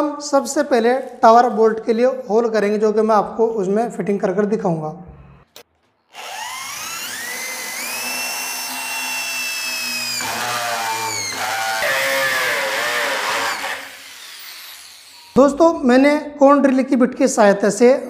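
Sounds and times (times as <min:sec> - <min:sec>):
electric drill drilling into metal: 0:06.1 - 0:15.4.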